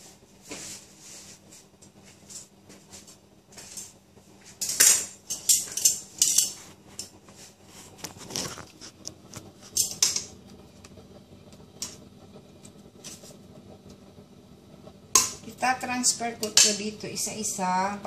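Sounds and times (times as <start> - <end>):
metal tongs clanking on pot: 4.6 - 7.2, 9.7 - 10.4, 16.4 - 16.9.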